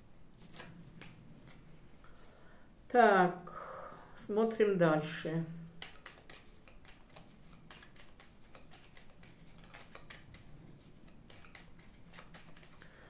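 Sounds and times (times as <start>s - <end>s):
playing cards being shuffled: 0.3s - 2.3s, 5.6s - 13.0s.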